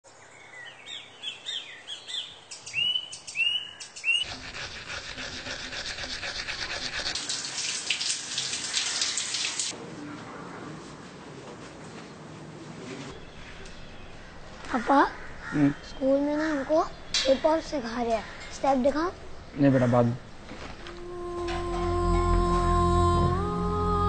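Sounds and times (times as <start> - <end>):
birds chirping: 0.1 - 4.3, 13.1 - 20.8
toothbrush scrubbing teeth: 4.2 - 7.5
shower water running: 6.0 - 9.8.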